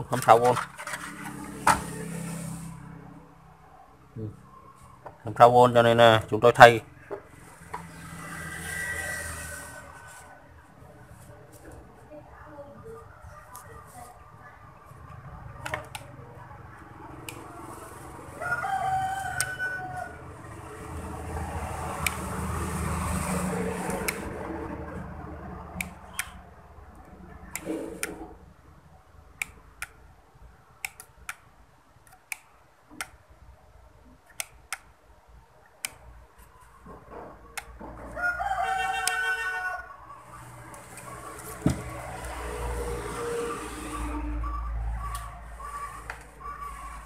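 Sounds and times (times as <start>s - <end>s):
rooster crowing: 18.3s - 20.4s, 38.0s - 40.3s
sharp clicks: 25.7s - 26.4s, 30.8s - 33.2s, 34.2s - 35.0s.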